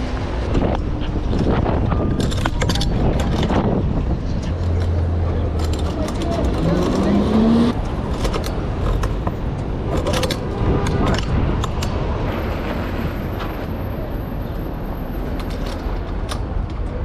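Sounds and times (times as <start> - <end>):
traffic rumble: 0.0 - 17.0
sharp clicks and rattles: 0.5 - 12.0.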